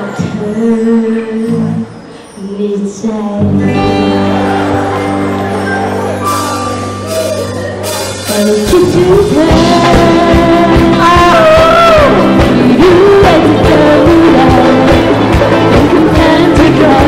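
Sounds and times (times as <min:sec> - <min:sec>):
woman singing: 0:00.0 - 0:04.7, 0:08.2 - 0:17.0
electric guitar: 0:03.0 - 0:17.0
steady drum beat: 0:06.2 - 0:17.0.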